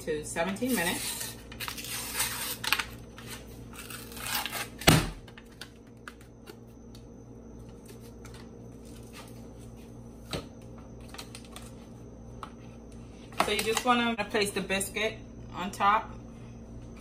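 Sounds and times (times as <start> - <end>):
paper wrapper rustling and tearing: 0.7 - 4.8.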